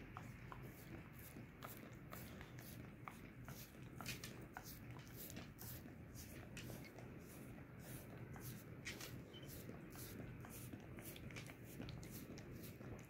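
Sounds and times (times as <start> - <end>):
dog licking wet clicks: 0.0 - 13.0.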